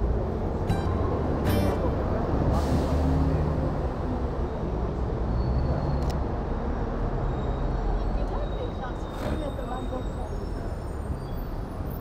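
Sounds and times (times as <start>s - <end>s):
heavy vehicle engine running: 0.0s - 4.4s
street traffic: 0.0s - 12.0s.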